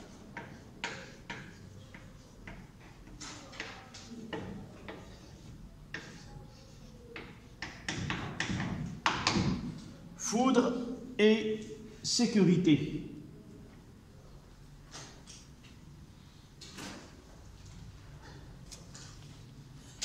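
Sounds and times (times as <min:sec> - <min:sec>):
chalk scratching on blackboard: 0:00.0 - 0:09.4.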